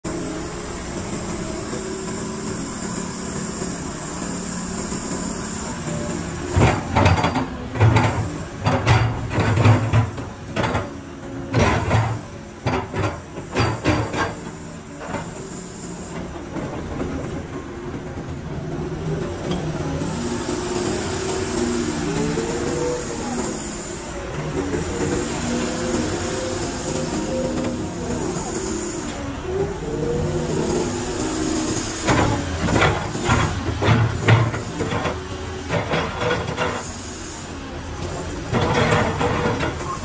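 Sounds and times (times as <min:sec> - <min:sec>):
excavator diesel engine running: 0:00.1 - 0:40.0
excavator bucket clunks and knocks: 0:06.5 - 0:10.9.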